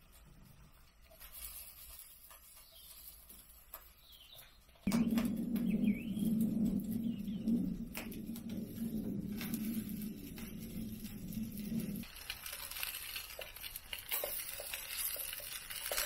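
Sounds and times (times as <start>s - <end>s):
faint chirps: 2.4s - 12.0s
loud low rumble: 4.9s - 12.1s.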